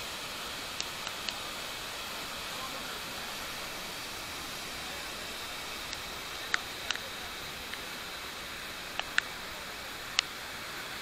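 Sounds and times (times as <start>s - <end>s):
waterfall rushing: 0.0s - 11.0s
sharp ticks: 8.9s - 9.3s.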